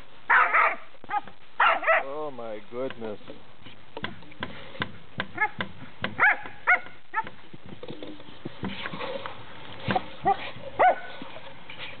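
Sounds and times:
dog barking in high yips: 0.3 - 2.0, 5.4 - 5.6, 6.2 - 7.3, 10.2 - 11.1
knocks and rustles: 2.8 - 12.0.

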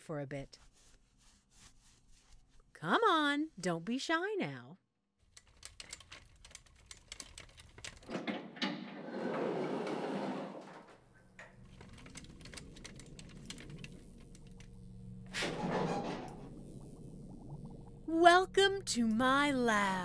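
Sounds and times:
rapid mechanical clicks: 5.2 - 8.2, 11.4 - 14.8.

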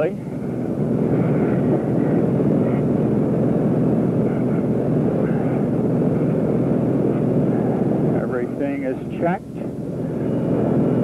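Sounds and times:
aircraft engine drone in cabin: 0.0 - 11.0.

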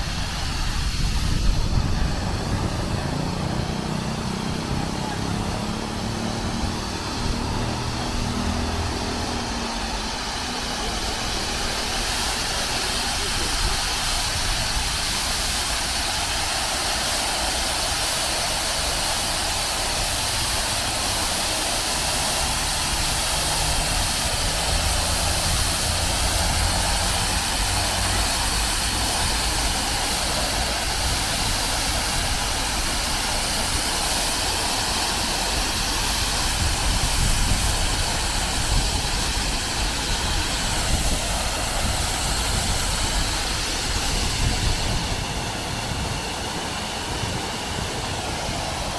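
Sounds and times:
low rumble: 0.0 - 12.0
fountain water splashing: 0.0 - 48.9.

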